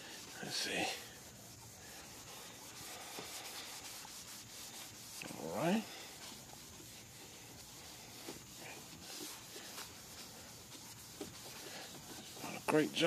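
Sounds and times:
hand rubbing plastic lens: 0:00.0 - 0:13.0
light scratchy strokes: 0:00.0 - 0:13.0.

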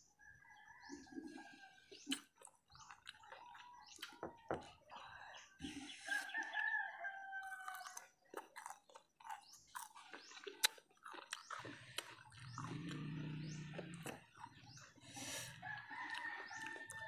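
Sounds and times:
mouth clicks and chewing: 0:00.8 - 0:17.0
rooster crowing: 0:06.1 - 0:08.0, 0:15.5 - 0:17.0.

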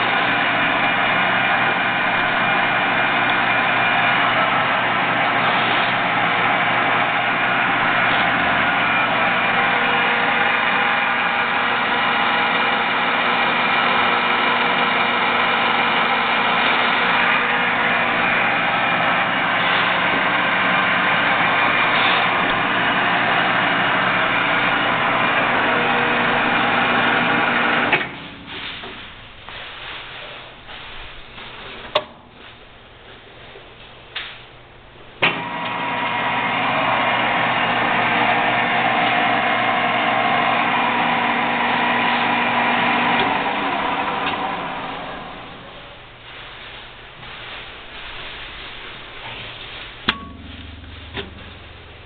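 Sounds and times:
metal lathe humming: 0:00.0 - 0:28.2, 0:35.2 - 0:46.0.

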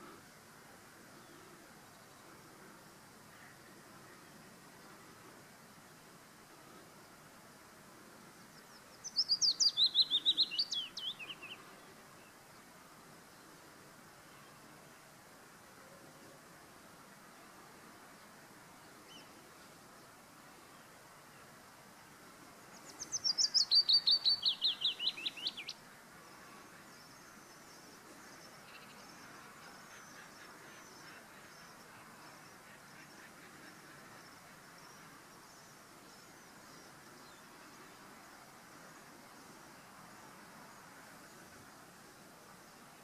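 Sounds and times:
faint high chirping: 0:08.4 - 0:12.3, 0:22.6 - 0:25.8
willow warbler singing: 0:08.4 - 0:12.7, 0:22.6 - 0:25.8.

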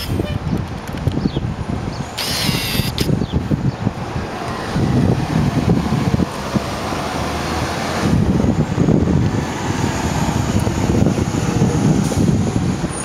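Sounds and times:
wind buffeting microphone: 0:00.0 - 0:13.0
bus driving past: 0:03.9 - 0:13.0.

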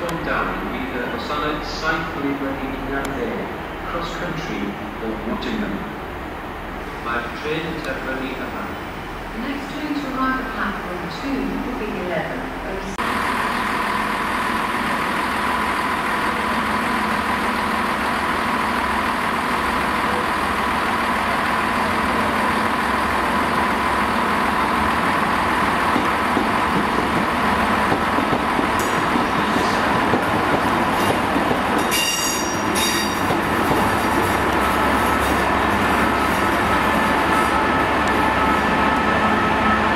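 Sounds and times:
locomotive diesel engine running: 0:13.0 - 0:39.9.

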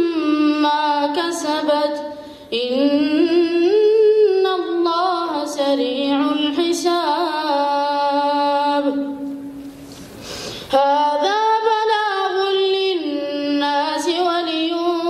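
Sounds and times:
boy chanting into a microphone: 0:00.0 - 0:09.5, 0:10.7 - 0:15.0
quick breath: 0:02.1 - 0:02.5, 0:10.0 - 0:10.7.

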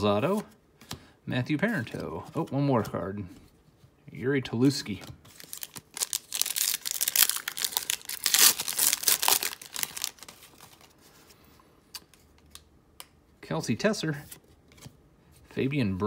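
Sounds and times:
foil wrapper tearing and crinkling: 0:05.4 - 0:10.9.

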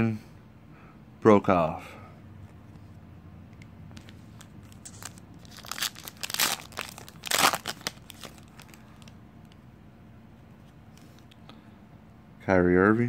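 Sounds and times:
handling cards: 0:02.4 - 0:09.6, 0:10.4 - 0:11.4
foil wrapper crinkling: 0:04.0 - 0:09.2.

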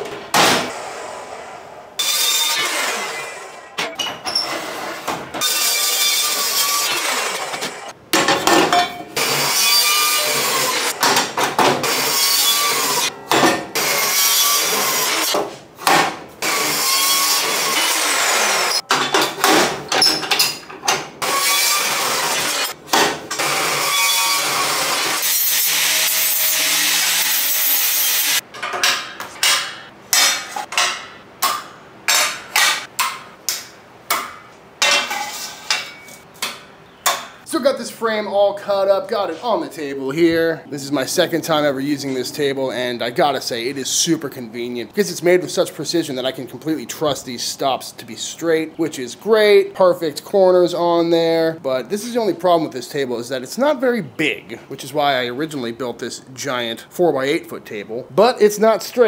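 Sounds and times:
chop saw cutting steel tube: 0:02.0 - 0:03.6, 0:05.4 - 0:07.9, 0:09.2 - 0:11.0, 0:11.8 - 0:15.4, 0:16.4 - 0:18.8, 0:21.2 - 0:28.4
metal clanking on a steel table: 0:08.2 - 0:09.1, 0:34.8 - 0:37.4.

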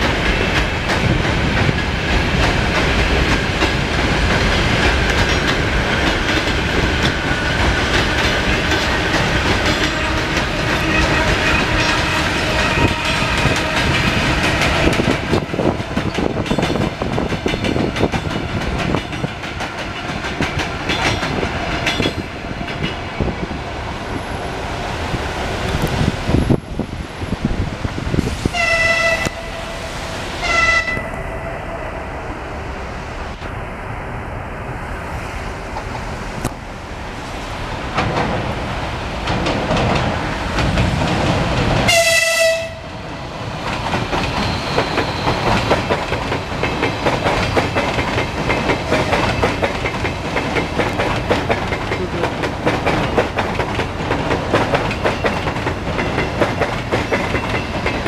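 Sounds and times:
clickety-clack of train wheels: 0:00.0 - 0:29.5, 0:35.7 - 0:36.6, 0:37.8 - 0:58.0
electric trains passing: 0:00.0 - 0:58.0
train horn blasts: 0:09.8 - 0:14.0, 0:28.5 - 0:32.0, 0:41.9 - 0:42.9.

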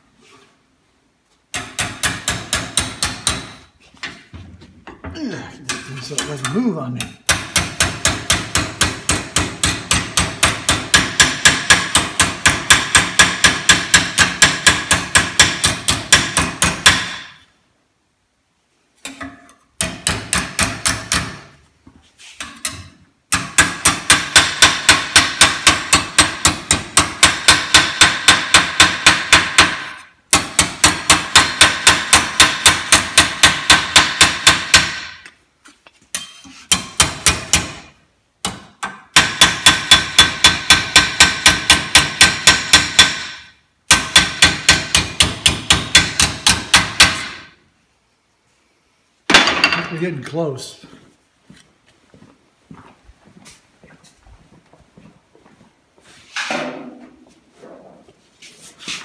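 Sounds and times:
hammer striking sheet metal: 0:01.5 - 0:03.7, 0:05.6 - 0:17.5, 0:19.0 - 0:21.6, 0:22.4 - 0:35.3, 0:36.1 - 0:47.6, 0:49.3 - 0:50.0.

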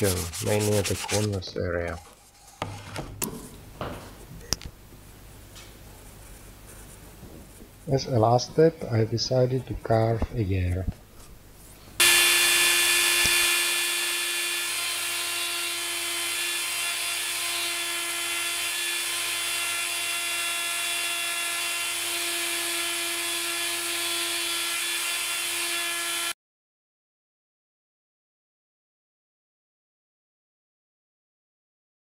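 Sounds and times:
rotary tool whine: 0:12.0 - 0:26.3.

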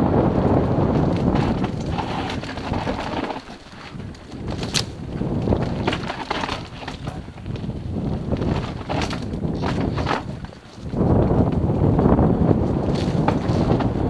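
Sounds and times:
bike rattling over rough ground: 0:00.0 - 0:14.0
wind buffeting microphone: 0:00.0 - 0:14.0.

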